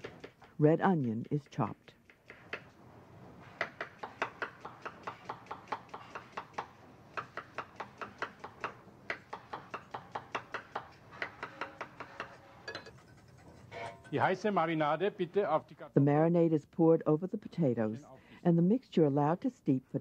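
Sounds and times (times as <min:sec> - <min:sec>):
knife chopping onion on board: 0:00.0 - 0:02.7, 0:03.6 - 0:12.4.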